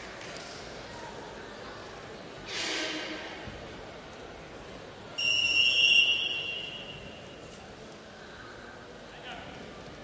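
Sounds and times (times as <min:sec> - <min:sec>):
hall crowd noise: 0:00.0 - 0:10.0
referee's whistle blast: 0:05.2 - 0:07.0.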